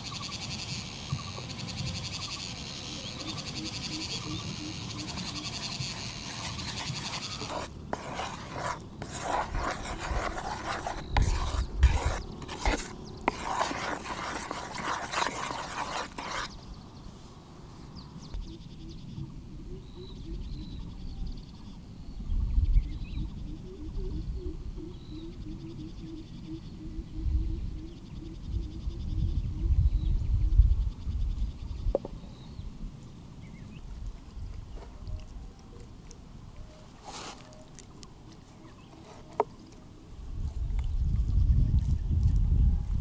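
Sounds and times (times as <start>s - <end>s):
rubbing and scraping: 5.1s - 16.6s, 37.0s - 37.9s, 38.9s - 39.8s.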